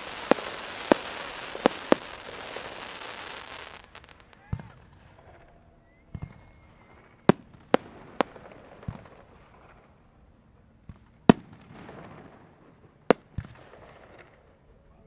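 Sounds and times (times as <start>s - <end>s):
fireworks crackling: 0.0s - 5.6s, 6.2s - 14.6s
fireworks bangs: 0.0s - 10.0s, 10.8s - 14.6s
faint fireworks pops: 0.0s - 14.6s.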